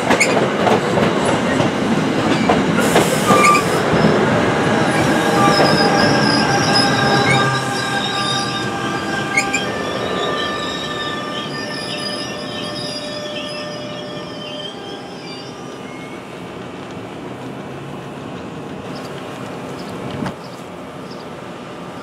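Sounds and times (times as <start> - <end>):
train wheels rumbling: 0.0 - 22.0.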